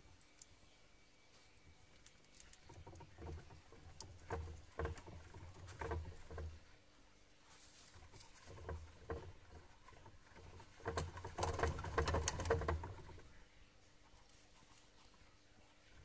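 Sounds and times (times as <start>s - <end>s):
rodents scrabbling: 0.0s - 6.8s, 7.5s - 16.0s
soft knocks and thumps: 2.4s - 6.8s, 7.6s - 13.4s.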